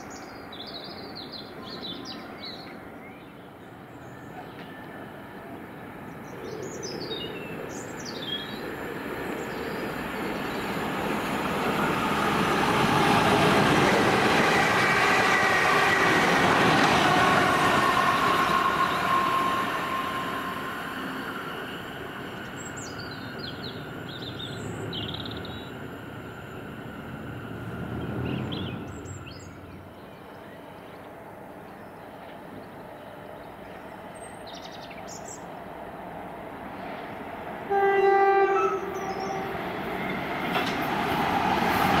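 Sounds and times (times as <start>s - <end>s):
train wheels rumbling on rail: 3.9s - 31.0s, 35.6s - 42.0s.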